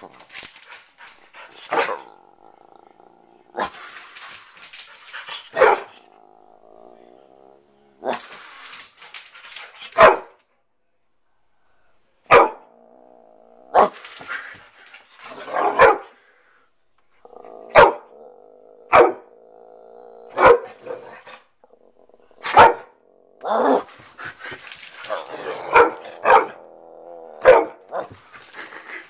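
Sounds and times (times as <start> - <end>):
dog growling: 1.3 - 8.4, 12.5 - 14.6, 17.1 - 29.0
dog barking: 5.5 - 6.0, 10.0 - 10.4, 12.3 - 12.7, 15.5 - 16.1, 17.7 - 18.1, 18.9 - 19.2, 20.3 - 21.0, 22.4 - 22.9, 25.7 - 26.6, 27.4 - 27.8.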